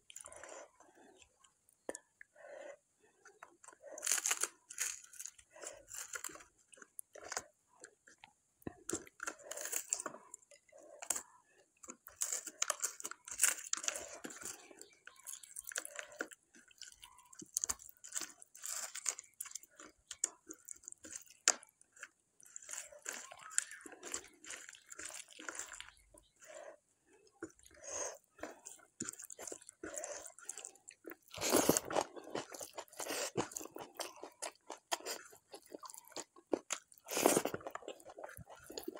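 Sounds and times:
chewing: 0.0s - 38.9s
fingers squishing food: 3.0s - 38.9s
crushing dried chillies: 3.7s - 7.5s, 8.8s - 26.6s.

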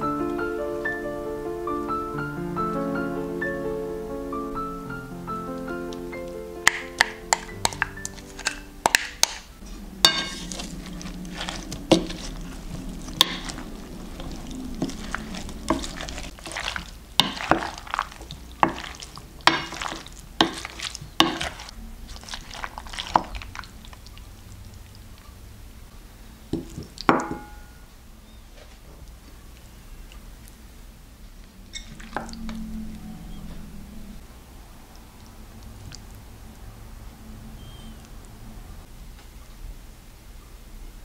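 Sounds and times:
utensil stirring potato salad: 6.6s - 25.2s
utensil scraping bowl: 6.7s - 24.0s.

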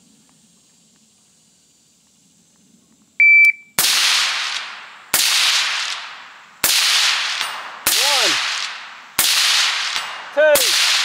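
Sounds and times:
shot timer beep: 3.2s - 3.7s
rifle shots: 3.8s - 11.0s.

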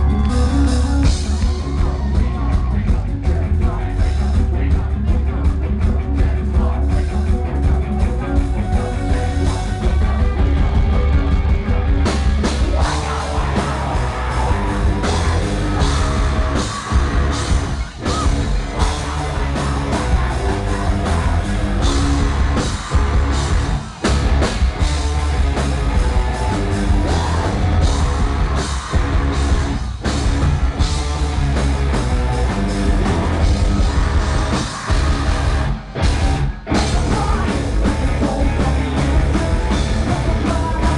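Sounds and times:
man singing: 0.0s - 23.7s, 25.5s - 29.7s, 36.7s - 40.9s
live rock band playing: 0.0s - 40.9s.

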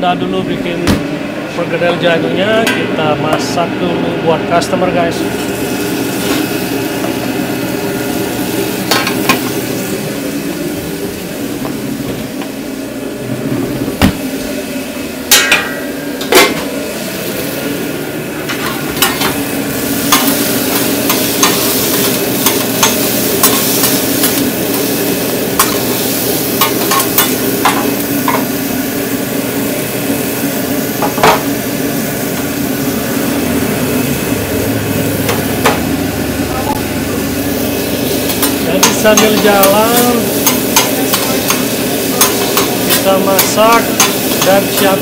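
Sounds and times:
chicken sizzling: 4.9s - 45.0s
metal utensil clicking on pan: 38.4s - 44.5s.

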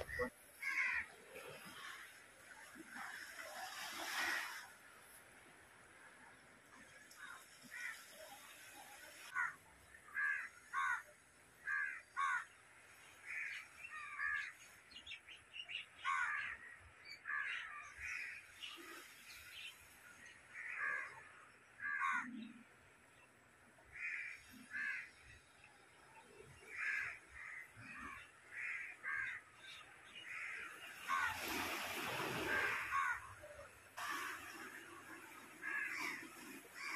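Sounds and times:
crows cawing: 0.6s - 1.1s, 7.7s - 8.0s, 9.3s - 12.5s, 16.0s - 16.6s, 21.8s - 22.3s, 23.9s - 25.2s, 26.7s - 29.4s, 32.4s - 33.3s, 35.6s - 36.9s.

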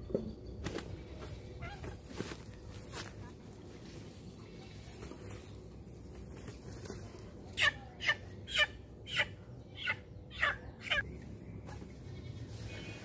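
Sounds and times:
chicken squawking: 7.6s - 11.0s.

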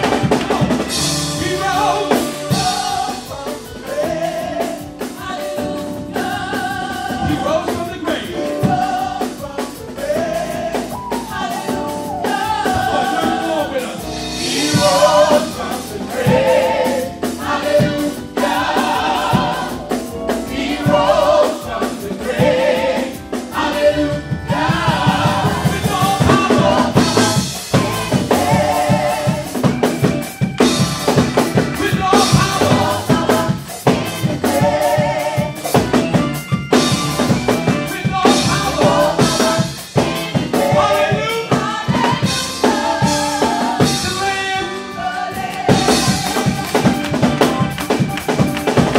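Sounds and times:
choir backing singers: 0.0s - 48.9s
drum kit: 0.0s - 48.9s
man singing lead vocals: 0.3s - 5.0s.

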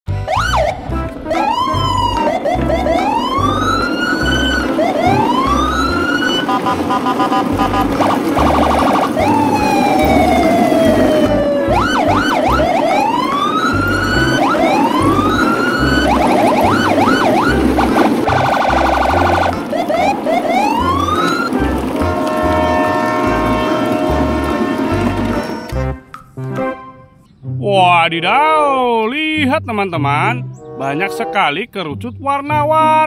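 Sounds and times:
pulsing bass beat: 0.1s - 12.8s, 13.8s - 26.0s
swooping siren-like whistles: 0.2s - 25.9s
electronic music: 14.1s - 26.7s.

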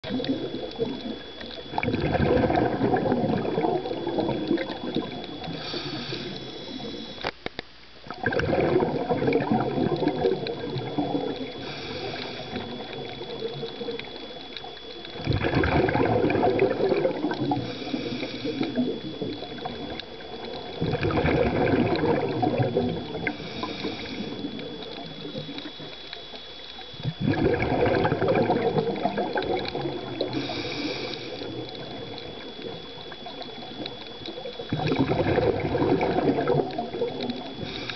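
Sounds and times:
exhaled bubbles rushing: 0.0s - 7.2s, 8.1s - 37.9s
faint high whine: 0.0s - 37.9s
scuba regulator inhalation hiss: 4.0s - 7.3s, 10.9s - 14.4s, 17.2s - 20.8s, 22.8s - 25.9s, 29.2s - 33.7s, 37.4s - 37.9s.

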